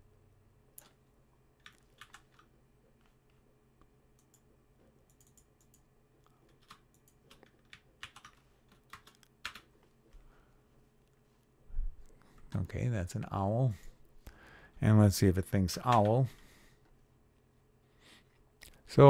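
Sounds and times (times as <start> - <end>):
low steady hum: 0.0 - 19.0
keyboard keystrokes and clicks: 1.6 - 2.5, 4.2 - 5.9, 6.5 - 9.7.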